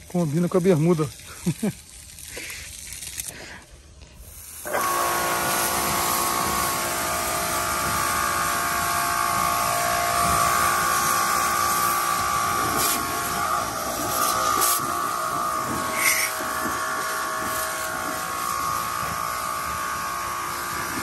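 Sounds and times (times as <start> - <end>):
water jet hissing: 0.0 - 21.0
pressure washer motor whining: 4.2 - 21.0.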